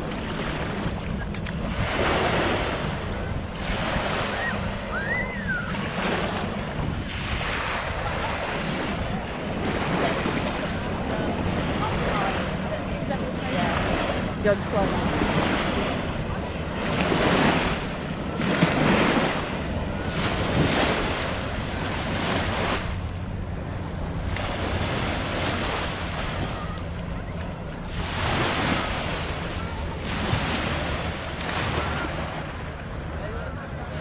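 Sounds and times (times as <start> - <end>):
small waves breaking on shore: 0.0 - 34.0
wind rumbling on microphone: 0.0 - 34.0.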